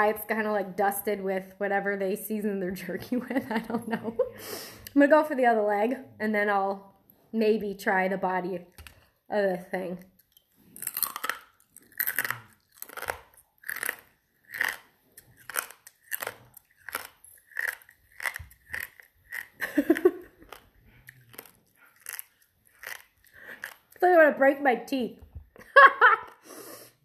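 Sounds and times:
crunchy chewing: 0:10.0 - 0:24.0.

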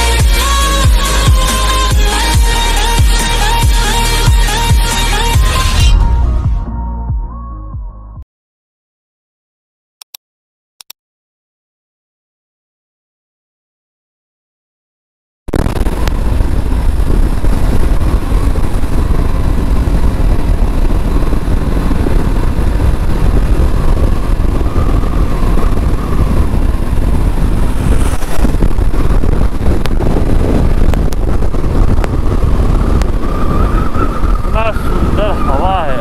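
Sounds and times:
wind rumble on microphone: 0:15.5 - 0:36.0
motorcycle engine running: 0:15.6 - 0:35.5.

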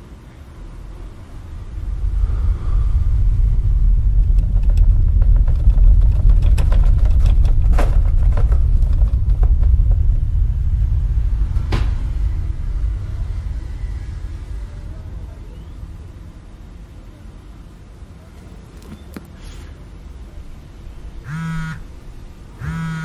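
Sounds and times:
loud deep rumble: 0:00.0 - 0:18.2
clicks and crackles: 0:03.9 - 0:10.3.

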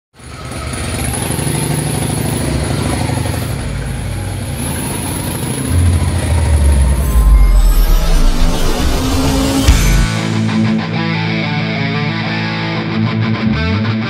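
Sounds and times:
motorcycle engine idling: 0:00.2 - 0:07.1.

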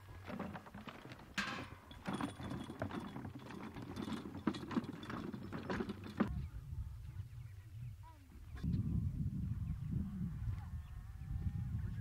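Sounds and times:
wooden wagon rattling and clunking: 0:00.0 - 0:06.4
wagon knocks: 0:00.2 - 0:06.3.

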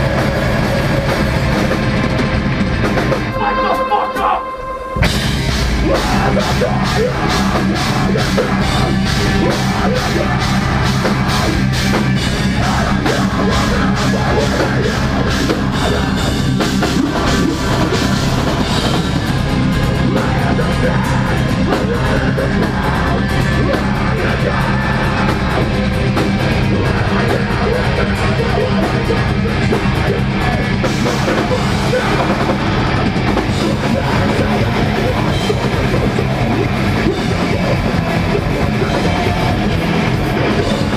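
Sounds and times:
heavy distorted metal band: 0:00.0 - 0:40.9
fast drum hits: 0:05.0 - 0:27.5.

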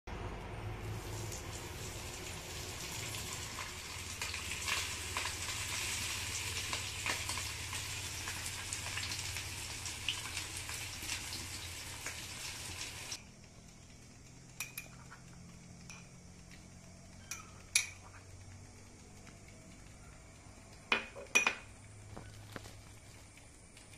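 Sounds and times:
fish sizzling in hot oil: 0:00.8 - 0:16.0.

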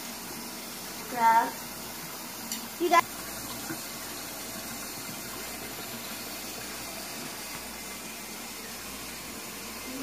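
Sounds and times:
faucet running into metal sink: 0:00.0 - 0:10.0.

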